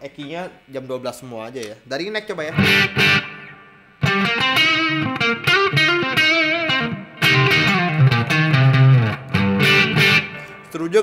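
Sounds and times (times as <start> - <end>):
electric guitar single notes: 2.5 - 10.8.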